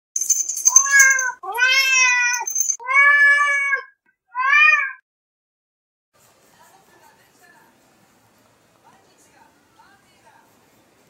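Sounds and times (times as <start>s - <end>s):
high bright ringing: 0.2s - 2.8s
cat meowing: 0.7s - 5.0s.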